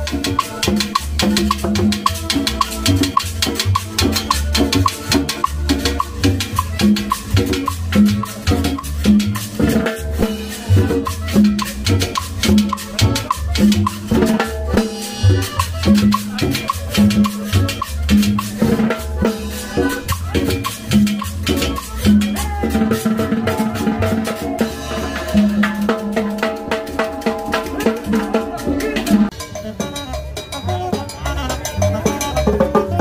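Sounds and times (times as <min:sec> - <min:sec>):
latin dance band music: 0:00.0 - 0:33.0.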